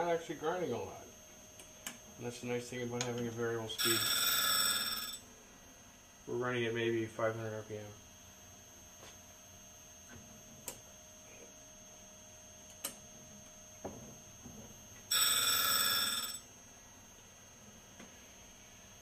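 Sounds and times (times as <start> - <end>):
bright ringing tone: 3.6 - 5.3, 15.0 - 16.6.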